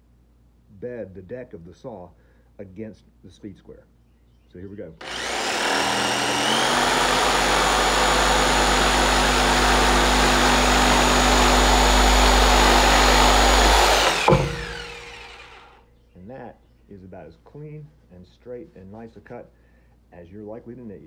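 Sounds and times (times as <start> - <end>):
jigsaw cutting wood: 5.0 - 15.8.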